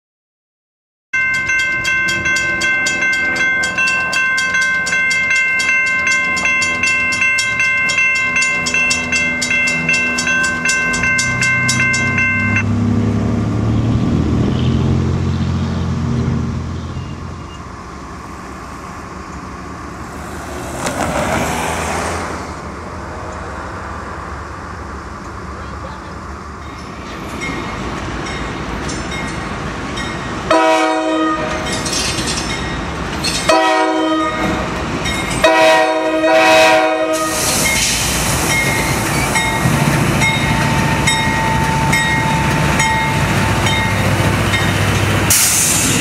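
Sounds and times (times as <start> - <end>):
railroad crossing bell ringing: 1.2 - 12.8, 26.6 - 45.6
diesel locomotive rumble: 1.2 - 46.0
rushing sound: 17.6 - 24.3, 37.2 - 46.0.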